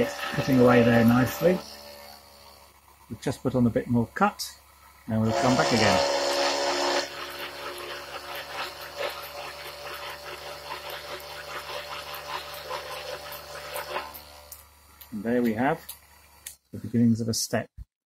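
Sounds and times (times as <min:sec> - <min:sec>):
cutter crackling on metal chips: 0:00.0 - 0:02.9, 0:05.3 - 0:16.6
milling machine motor hum: 0:00.0 - 0:16.5.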